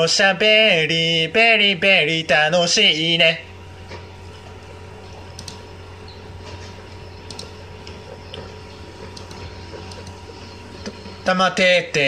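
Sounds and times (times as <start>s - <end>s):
low hum: 0.0s - 12.0s
faint clicks and ticks: 5.1s - 6.2s, 7.2s - 11.2s.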